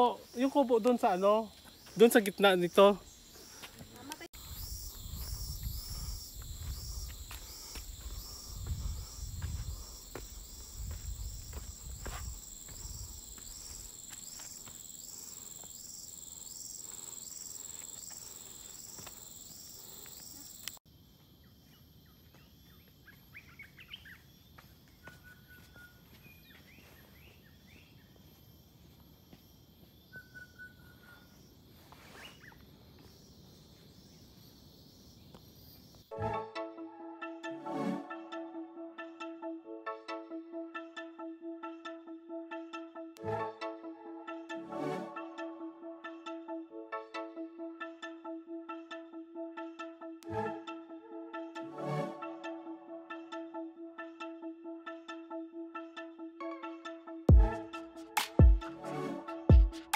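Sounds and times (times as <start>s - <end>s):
pulsing insect drone: 0.0s - 24.6s
bird chirps and whistles: 30.1s - 31.3s.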